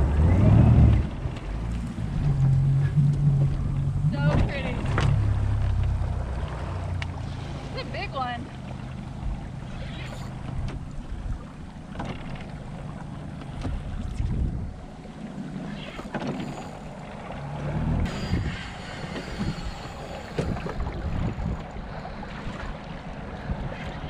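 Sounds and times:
knocks and splashes: 0.0s - 18.5s
water lapping against boat hull: 0.0s - 24.0s
wind on microphone: 13.6s - 14.9s, 17.9s - 24.0s.

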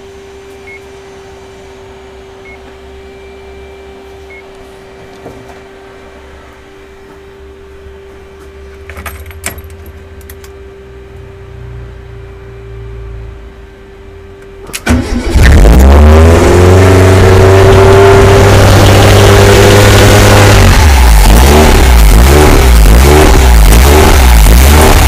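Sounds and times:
faint steady tone: 0.0s - 4.6s
car engine running: 9.4s - 25.0s.

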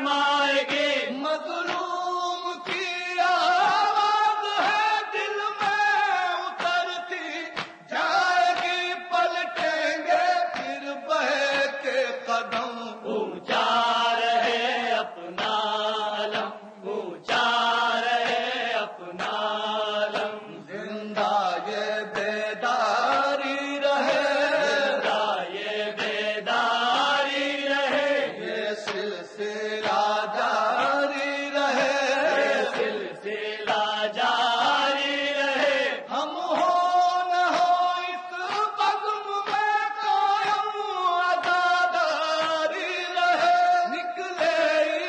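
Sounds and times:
man chanting a lament: 19.7s - 45.0s.

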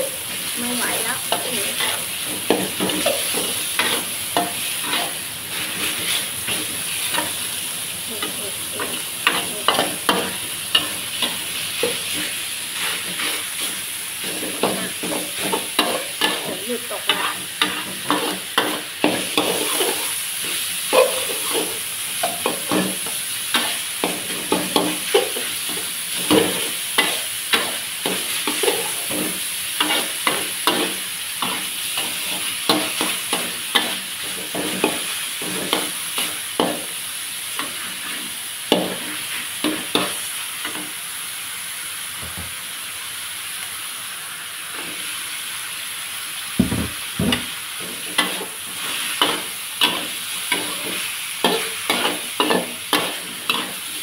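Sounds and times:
meat sizzling in hot oil: 0.0s - 54.0s
metal spatula scraping a wok: 1.2s - 7.5s, 8.1s - 36.9s, 47.8s - 54.0s.

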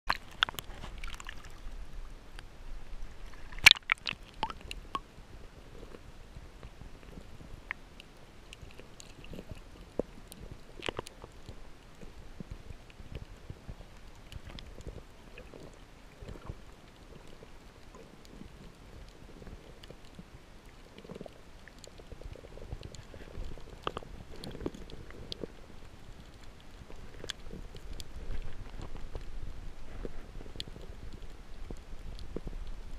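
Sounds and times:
sharp underwater clicks: 0.1s - 2.5s, 3.4s - 5.1s, 7.6s - 12.0s, 21.0s - 29.3s
low rumble of moving water: 0.1s - 32.9s.

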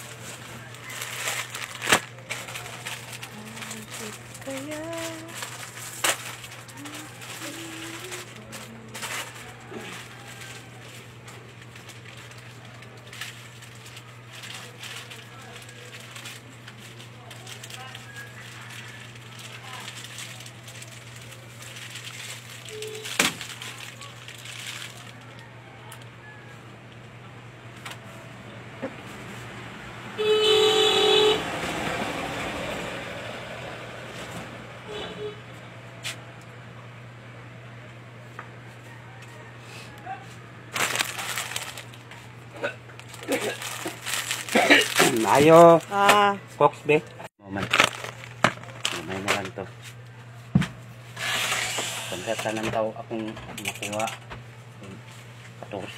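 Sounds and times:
packets rustling: 0.0s - 25.3s, 40.7s - 46.3s, 47.5s - 49.9s
vehicle driving away: 28.1s - 35.9s
vehicle horn blast: 30.1s - 31.7s, 34.8s - 35.5s.

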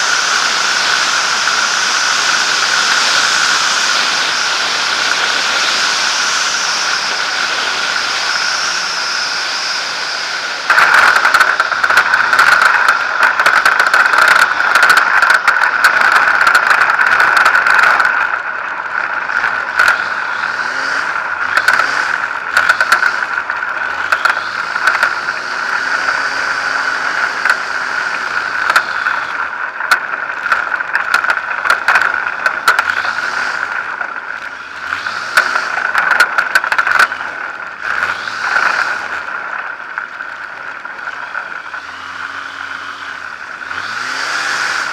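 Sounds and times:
light aircraft engine: 0.0s - 44.9s
plane rattling over rough ground: 0.0s - 44.9s.

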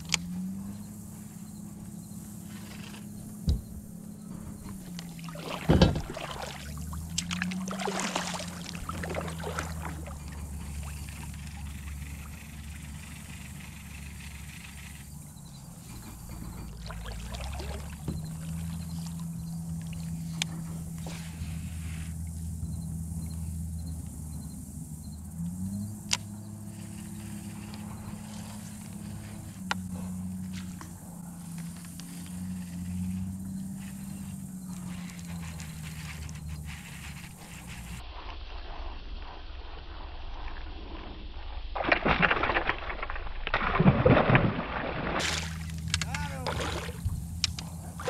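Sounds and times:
low steady hum: 0.0s - 48.0s
water trickling: 5.0s - 12.3s, 16.6s - 19.2s
gear clicking and knocking in kayak: 8.3s - 21.0s, 45.2s - 48.0s
sharp clicks: 26.0s - 26.3s, 45.6s - 46.6s.

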